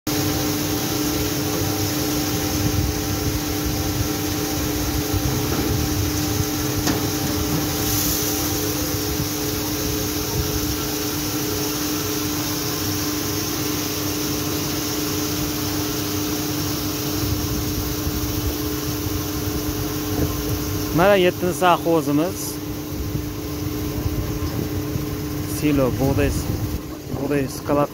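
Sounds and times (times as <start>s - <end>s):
mechanical hum: 0.1s - 27.9s
wind rumble on microphone: 2.4s - 7.8s, 8.4s - 10.9s, 17.2s - 20.9s, 22.9s - 27.6s.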